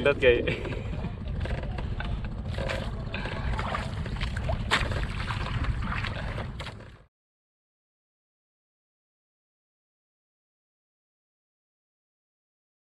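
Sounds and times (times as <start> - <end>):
wind buffeting microphone: 0.0 - 6.9
water noise: 0.0 - 7.1.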